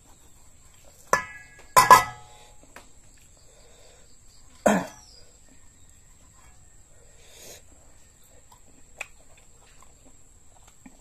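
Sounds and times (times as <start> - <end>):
faint small noises: 0.0 - 11.0
person coughing: 4.6 - 5.0.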